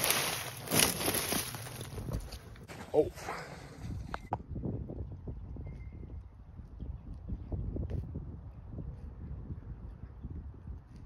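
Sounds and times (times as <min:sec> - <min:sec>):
footsteps crunching in snow: 0:00.0 - 0:02.8
wind rumbling on microphone: 0:00.0 - 0:11.0.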